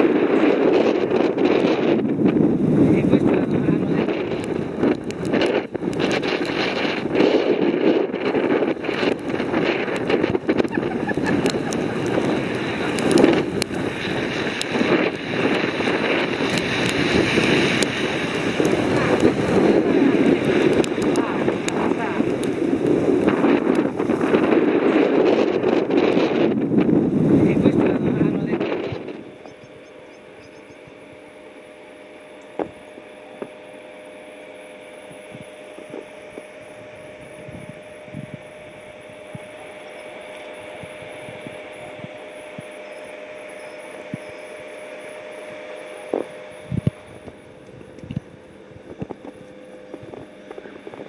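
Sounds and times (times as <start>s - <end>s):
faint constant hum: 0.0s - 51.0s
wind buffeting microphone: 0.0s - 51.0s
steady low hiss: 2.0s - 33.8s.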